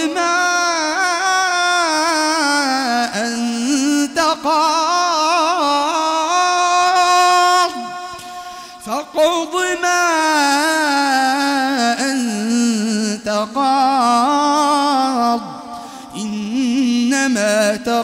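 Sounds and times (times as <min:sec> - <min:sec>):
man reciting in melodic chant: 0:00.0 - 0:18.0.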